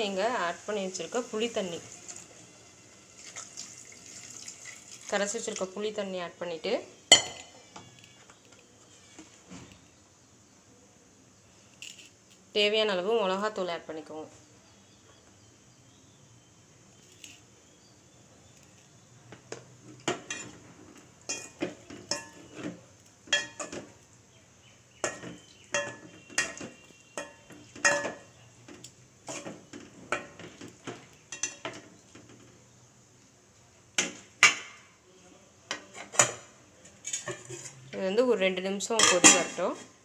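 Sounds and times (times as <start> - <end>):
metal spoon stirring in metal pot: 20.0 - 23.9, 25.0 - 32.1, 35.7 - 37.9, 38.9 - 40.0.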